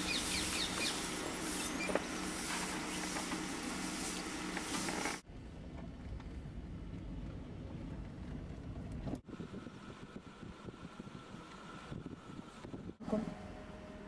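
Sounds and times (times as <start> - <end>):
outdoor hiss: 0.0 - 5.2
wind on microphone: 8.6 - 13.0.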